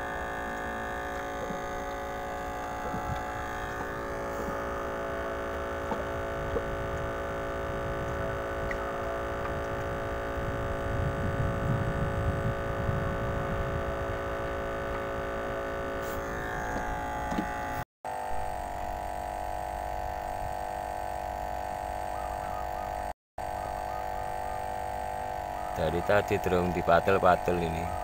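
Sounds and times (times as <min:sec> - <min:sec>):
machine humming: 0:00.0 - 0:28.0.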